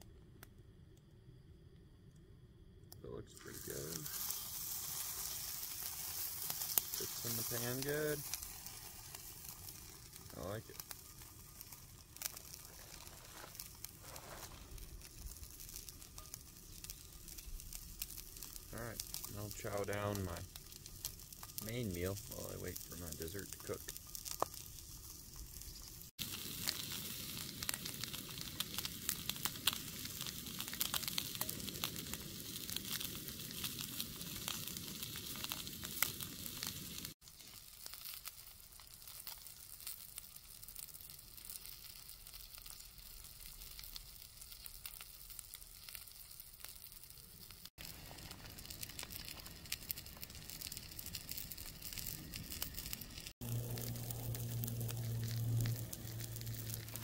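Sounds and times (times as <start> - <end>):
fish sizzling in oil: 3.4 - 57.0.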